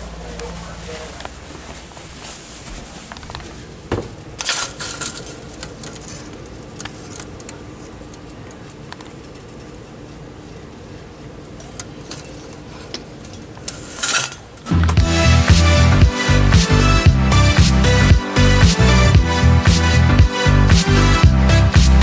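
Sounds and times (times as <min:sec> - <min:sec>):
heat pump hum and fan: 0:00.0 - 0:15.0.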